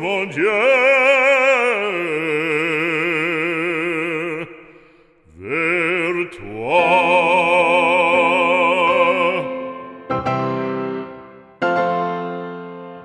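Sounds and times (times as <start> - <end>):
person singing a hymn with vibrato: 0.0 - 10.3.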